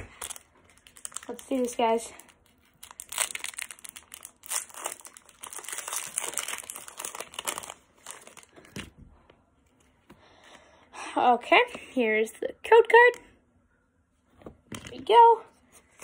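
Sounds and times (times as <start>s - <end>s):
foil wrapper tearing and crinkling: 0.0s - 8.6s.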